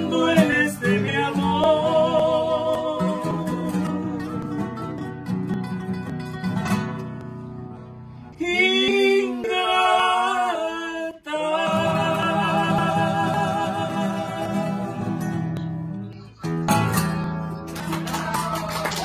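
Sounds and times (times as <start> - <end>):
men singing: 0.0 - 4.9, 8.4 - 15.6
nylon-string guitars playing waltz: 0.0 - 10.4, 11.6 - 18.0.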